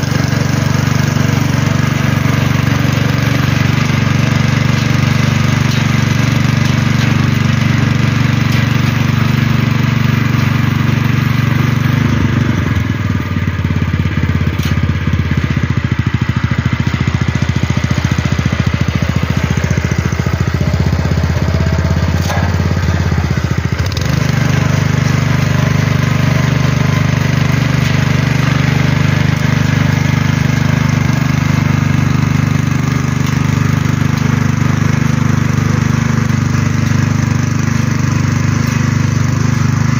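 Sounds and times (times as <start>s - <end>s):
tiller engine running: 0.0s - 39.9s
tines churning dry soil: 0.0s - 39.9s.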